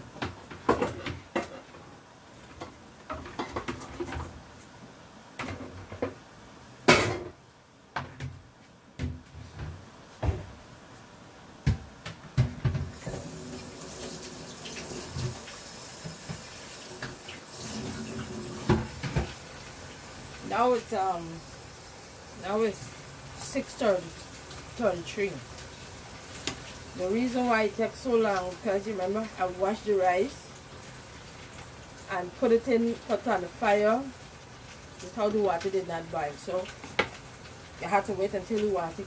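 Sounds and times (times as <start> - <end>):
pots and utensils clattering: 0.2 - 1.8, 2.6 - 4.4, 6.9 - 7.4
tap running into sink: 12.4 - 19.4.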